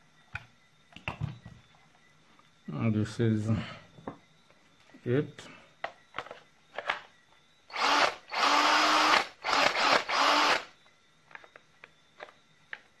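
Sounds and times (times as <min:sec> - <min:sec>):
cordless drill motor running: 0:07.7 - 0:10.7.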